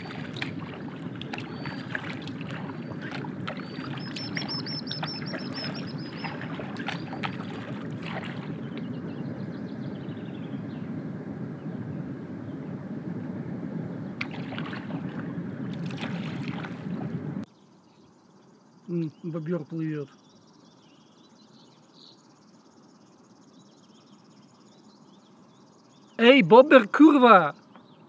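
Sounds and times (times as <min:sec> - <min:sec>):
water splashes and drips: 0:00.0 - 0:09.0, 0:14.2 - 0:17.2
paddle strokes in water: 0:00.0 - 0:10.2, 0:14.2 - 0:17.5
songbird trilling: 0:00.0 - 0:10.9
low water noise: 0:00.0 - 0:17.5.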